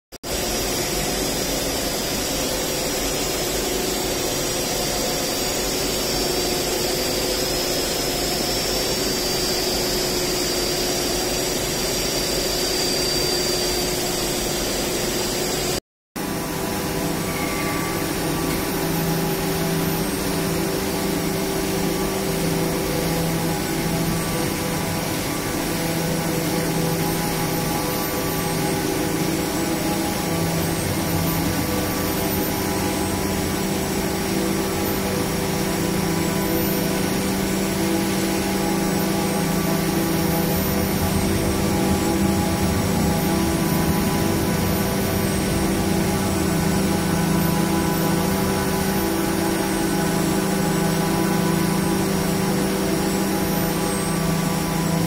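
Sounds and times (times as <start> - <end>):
machine whining tones: 0.3 - 55.0
low hum: 16.2 - 55.0.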